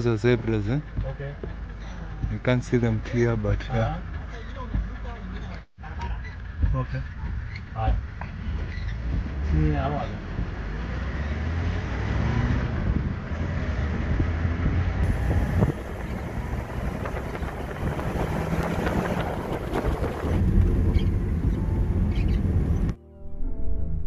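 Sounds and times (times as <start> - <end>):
vehicle engine and road rumble: 0.0 - 23.0
wind buffeting microphone: 12.6 - 23.0.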